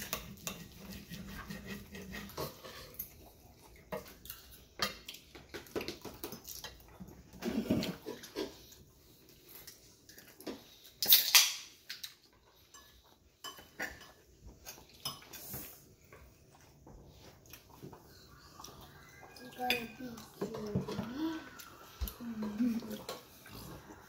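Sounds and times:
soda can opening with pop and fizz: 11.0s - 11.7s
chewing and lip-smacking: 14.6s - 19.5s.

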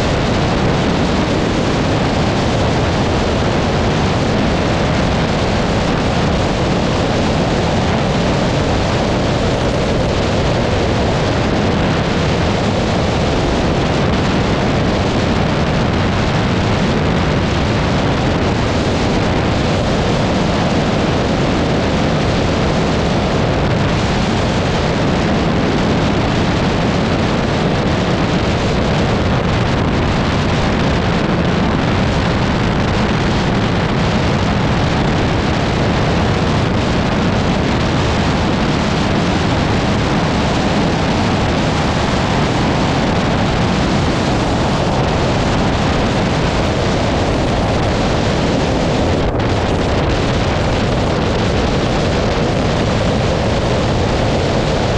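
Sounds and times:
wind rushing on microphone: 0.0s - 54.9s.

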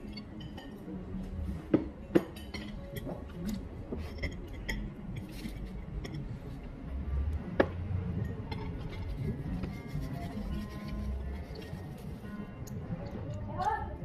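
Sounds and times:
fork clinking on ceramic plates: 2.2s - 3.3s.

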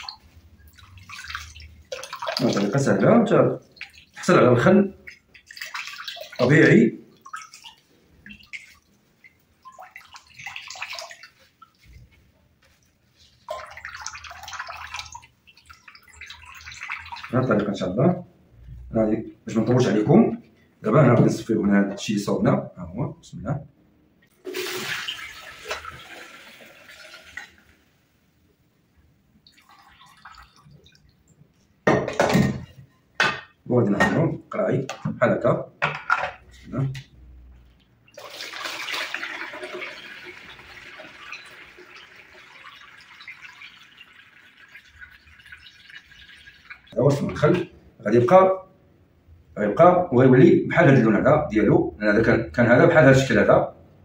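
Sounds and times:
liquid pouring through strainer: 0.0s - 8.8s, 9.6s - 12.1s, 13.2s - 17.5s, 24.4s - 27.8s, 29.5s - 31.2s, 38.1s - 47.4s
faint liquid trickle: 0.0s - 20.7s, 25.1s - 28.1s, 29.4s - 31.8s, 37.3s - 48.0s.

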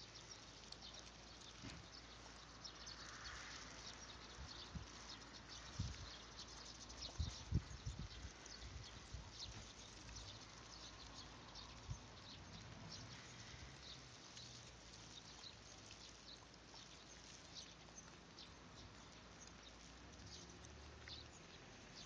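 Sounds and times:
faint ticks and clicks: 0.0s - 22.0s.

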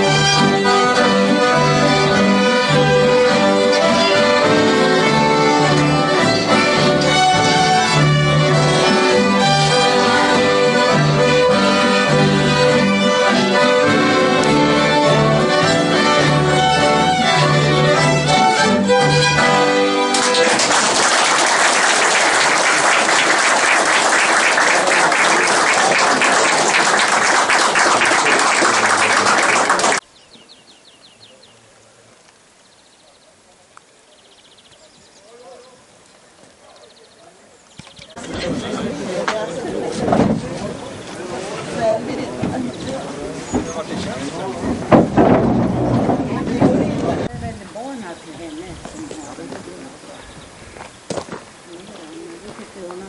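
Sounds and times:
double bass: 0.0s - 20.1s, 38.2s - 51.6s
folk fiddle ensemble playing: 0.0s - 30.0s, 38.1s - 50.9s
audience applauding: 20.1s - 30.0s.

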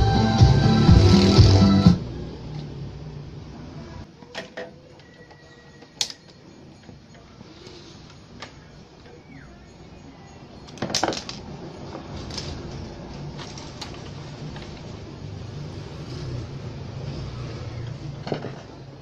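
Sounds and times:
clicks and knocks: 10.6s - 14.8s
metal clatter: 10.7s - 15.0s, 18.1s - 19.0s.

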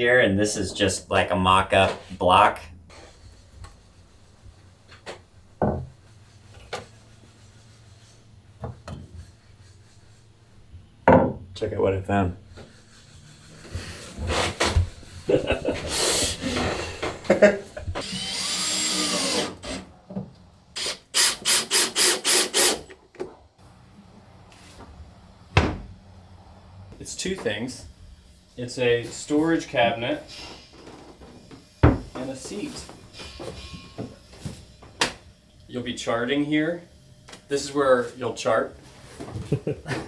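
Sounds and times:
cordless drill running in bursts: 18.0s - 19.8s, 20.8s - 22.8s.

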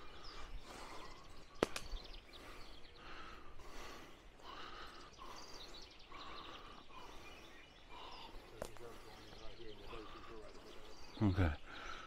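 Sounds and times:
small birds chirping: 0.0s - 12.0s.

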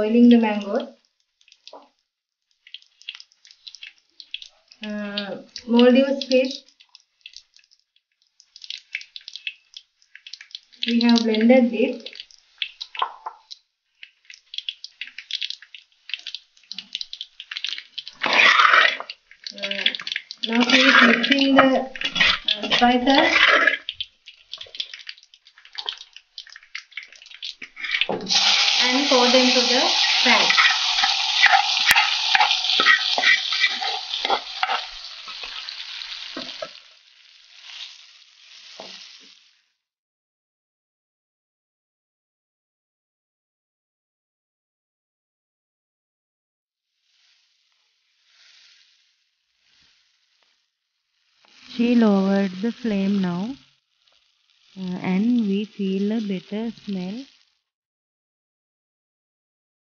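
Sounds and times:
oil crackling and sizzling: 0.0s - 39.8s, 46.8s - 57.7s
wooden spatula scraping pot: 18.0s - 25.0s, 27.0s - 36.8s.

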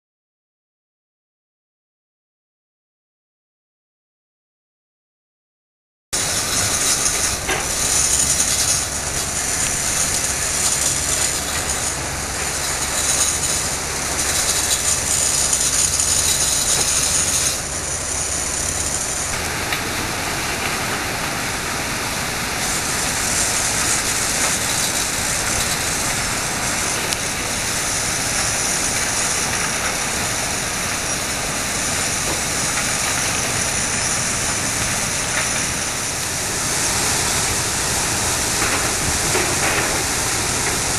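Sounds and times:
low pump machinery drone: 6.2s - 40.9s.

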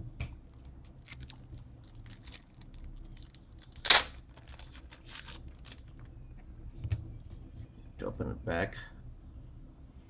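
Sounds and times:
packaging rustling: 1.0s - 6.1s.

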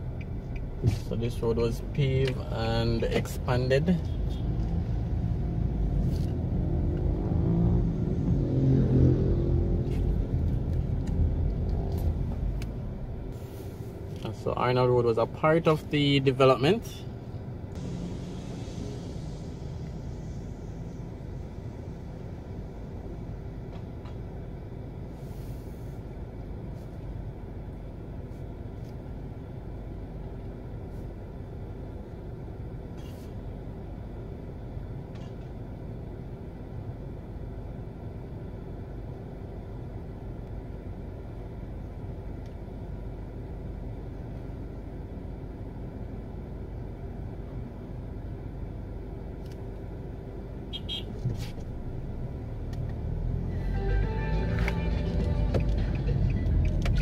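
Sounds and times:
car idling: 9.8s - 32.8s, 53.7s - 57.0s.

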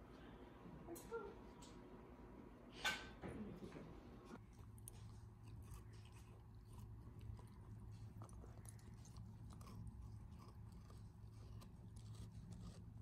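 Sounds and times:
low steady hum: 0.0s - 13.0s
teeth crunching on carrot: 4.4s - 13.0s.

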